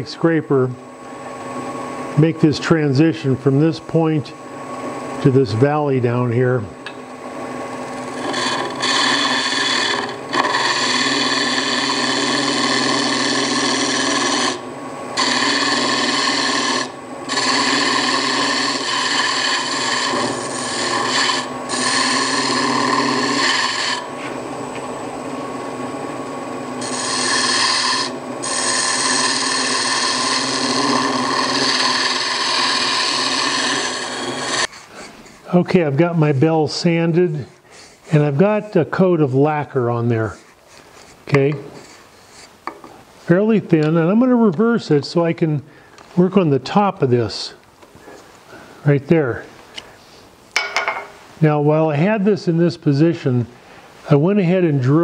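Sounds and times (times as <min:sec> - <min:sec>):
scraper cutting wood on lathe: 0:07.8 - 0:24.3, 0:26.8 - 0:35.4.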